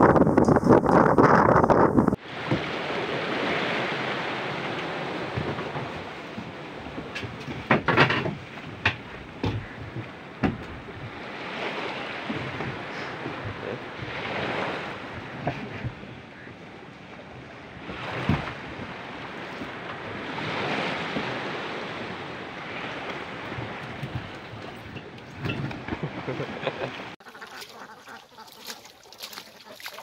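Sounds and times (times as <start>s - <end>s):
wind on microphone: 0.0s - 26.3s
water lapping against wooden boat: 0.0s - 30.0s
sharp knocks: 7.1s - 10.8s.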